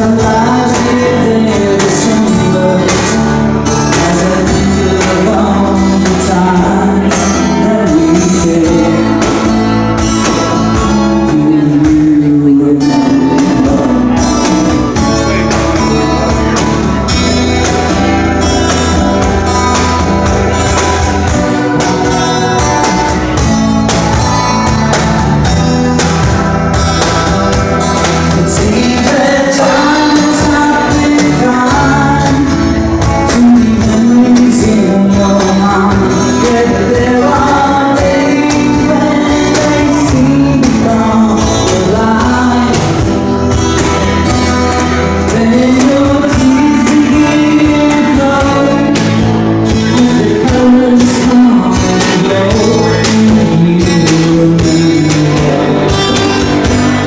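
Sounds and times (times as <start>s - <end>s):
cajon drum: 0.0s - 57.0s
electric bass: 0.0s - 57.0s
keyboard: 0.0s - 57.0s
man singing: 0.0s - 57.0s
strummed acoustic guitar: 0.0s - 57.0s.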